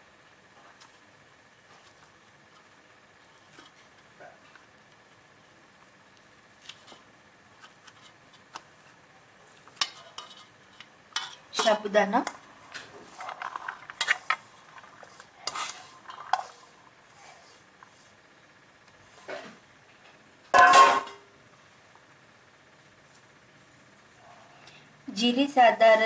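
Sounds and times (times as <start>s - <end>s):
fingers crumbling potato on steel plate: 0.5s - 16.6s
sago pearls scraped into steel bowl: 13.0s - 18.1s.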